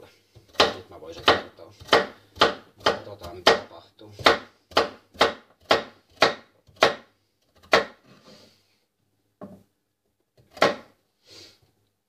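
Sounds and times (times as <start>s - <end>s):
knife chopping on wooden board: 0.4s - 8.0s, 10.4s - 10.9s.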